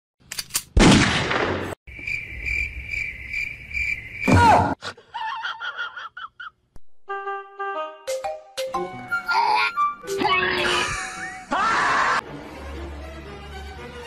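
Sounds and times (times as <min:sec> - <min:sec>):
crickets chirping: 0:01.9 - 0:04.5.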